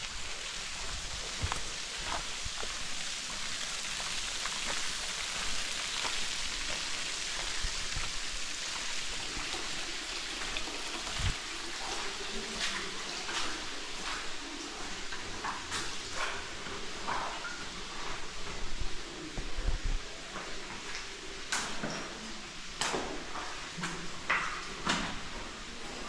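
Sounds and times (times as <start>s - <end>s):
water hissing: 0.0s - 15.0s.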